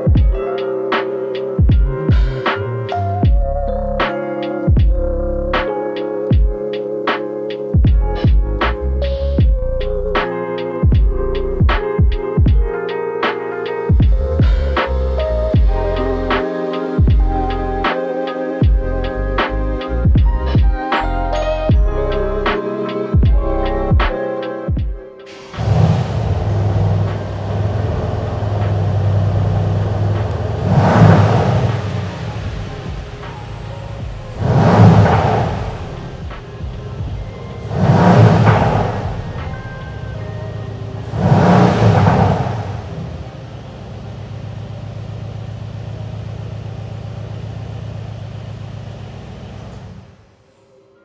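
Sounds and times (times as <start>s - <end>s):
car engine idling and revving: 1.6s - 4.0s, 7.8s - 10.2s, 10.8s - 12.5s, 13.9s - 16.4s, 17.0s - 17.9s, 25.3s - 50.4s.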